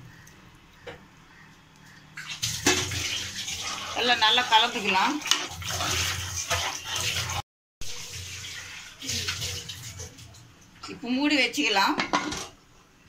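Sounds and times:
liquid sloshing: 0:02.0 - 0:10.4.

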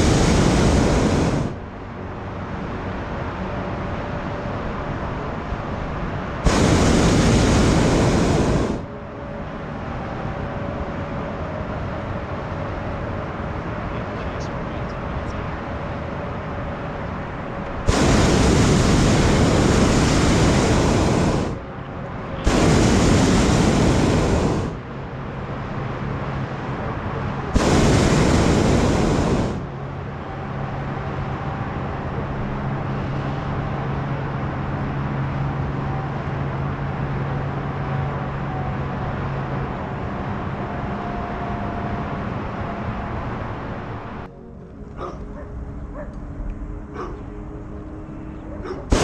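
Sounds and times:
propane burner blasts: 0:00.0 - 0:01.6, 0:06.4 - 0:08.9, 0:17.8 - 0:21.7, 0:22.4 - 0:24.9, 0:27.4 - 0:29.7
low hum: 0:00.0 - 0:02.5, 0:05.6 - 0:40.0, 0:42.0 - 0:49.0.

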